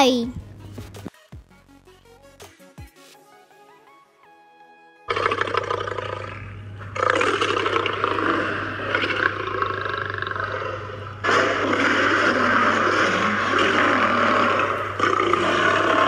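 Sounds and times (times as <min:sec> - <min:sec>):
steady low hum: 0:05.5 - 0:16.0
lion roaring: 0:07.0 - 0:16.0.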